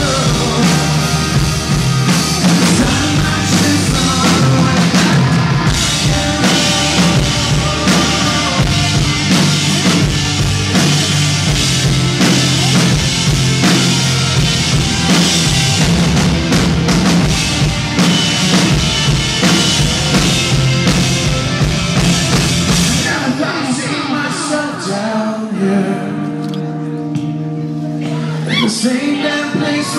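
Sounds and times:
live rock band playing: 0:00.0 - 0:29.9.

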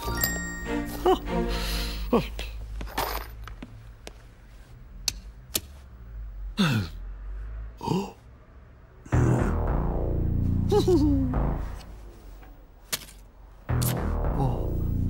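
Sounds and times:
man sighing or humming: 0:09.1 - 0:09.7, 0:10.6 - 0:11.8, 0:14.3 - 0:15.0
loud steady sound: 0:09.1 - 0:12.2.

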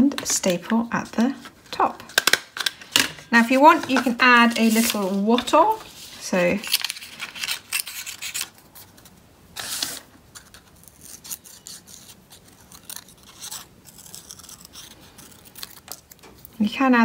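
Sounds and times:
faint paper rustling: 0:00.2 - 0:16.7
scissors snipping paper: 0:10.4 - 0:16.6.

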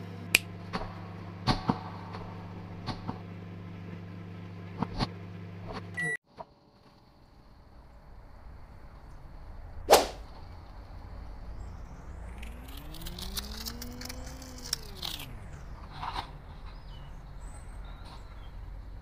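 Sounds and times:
low steady hum: 0:00.0 - 0:19.0
whoosh with crackling: 0:08.9 - 0:18.9
sharp swish: 0:09.9 - 0:10.3.

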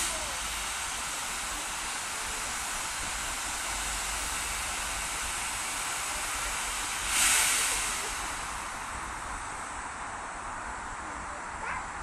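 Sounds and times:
steam locomotive hissing: 0:00.0 - 0:11.5.

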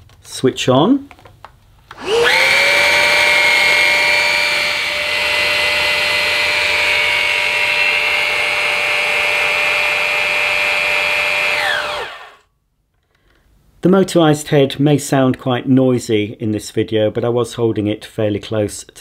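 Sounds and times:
vacuum cleaner whining: 0:01.9 - 0:12.4.

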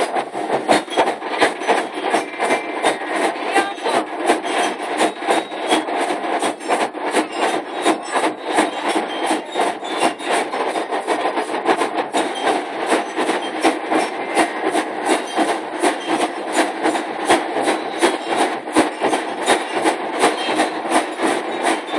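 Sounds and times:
marching drums beating: 0:00.0 - 0:21.9.

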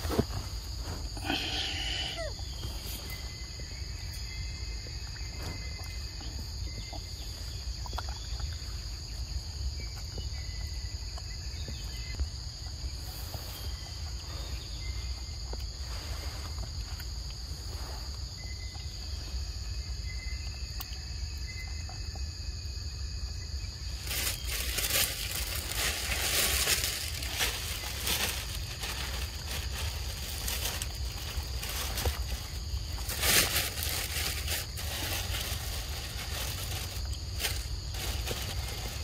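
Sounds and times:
high insect drone: 0:00.0 - 0:39.0
irregular rustling: 0:24.0 - 0:39.0.

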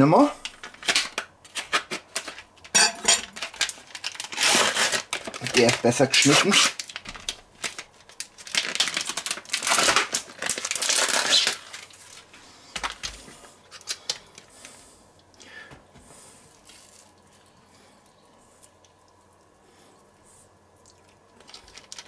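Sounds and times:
plastic packaging crinkling: 0:00.4 - 0:14.8, 0:16.4 - 0:17.6, 0:20.9 - 0:22.0.

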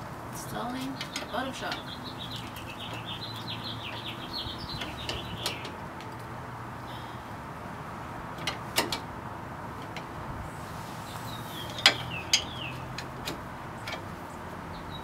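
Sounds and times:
small bird chirping: 0:00.8 - 0:05.8, 0:11.0 - 0:13.0.

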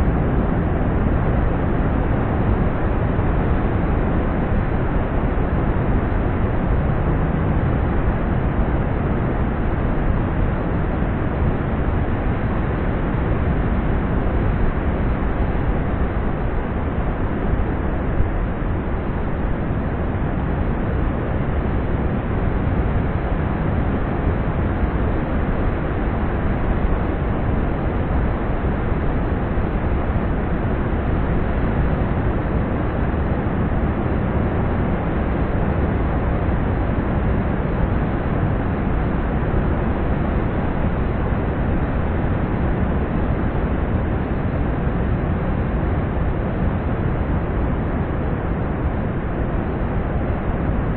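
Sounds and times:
wind on microphone: 0:00.0 - 0:50.9.

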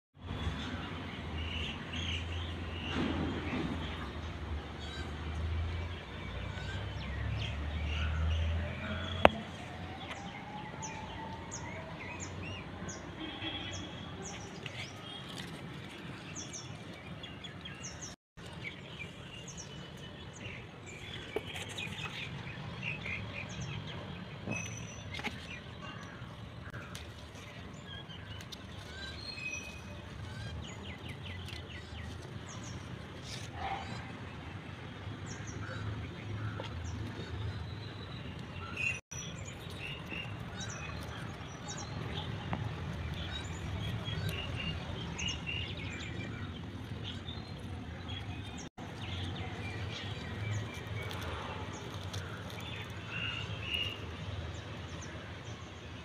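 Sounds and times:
outdoor background noise: 0:00.2 - 0:56.0
small birds chirping: 0:35.3 - 0:55.7.

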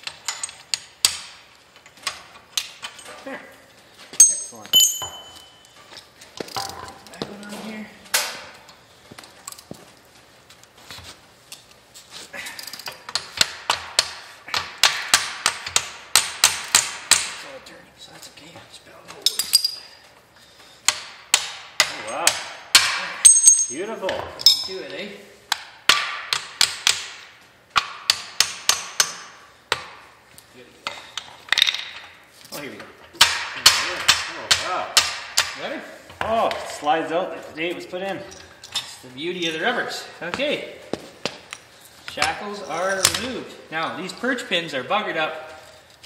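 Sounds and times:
hammer striking steel: 0:04.2 - 0:05.6.

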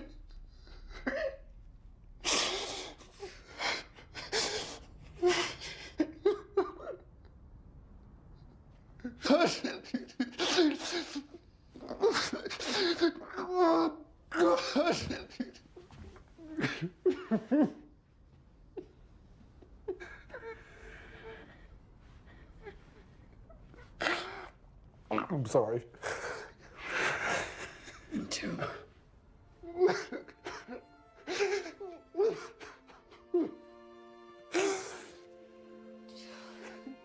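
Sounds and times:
man sobbing: 0:00.0 - 0:01.6, 0:02.2 - 0:07.2, 0:09.0 - 0:17.9, 0:19.6 - 0:21.6, 0:26.0 - 0:33.7, 0:34.4 - 0:35.3
whimpering cries: 0:29.6 - 0:33.6.

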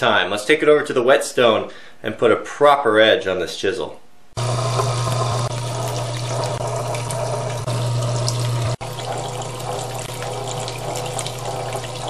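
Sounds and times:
electric motor hum: 0:04.4 - 0:12.0
water sloshing and trickling: 0:05.5 - 0:12.0.

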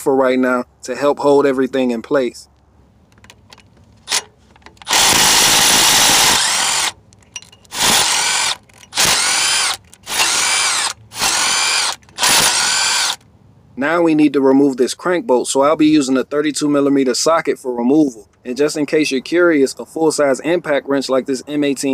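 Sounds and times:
cordless impact driver bursts: 0:04.1 - 0:07.0, 0:07.7 - 0:13.2.

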